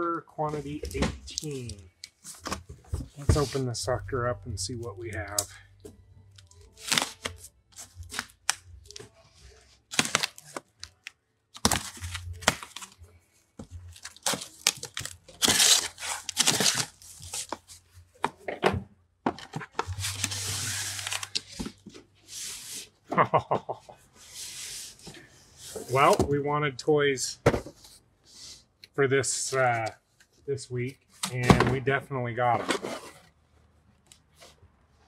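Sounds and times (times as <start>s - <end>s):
packing tape tearing off cardboard: 6.7s - 9.1s, 9.9s - 13.0s, 13.9s - 17.7s, 19.8s - 21.8s.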